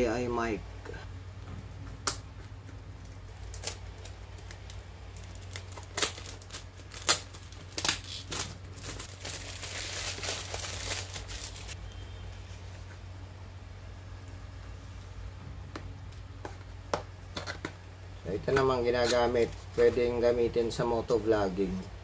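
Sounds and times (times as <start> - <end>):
plastic wrapping tearing and crinkling: 3.0 - 11.8.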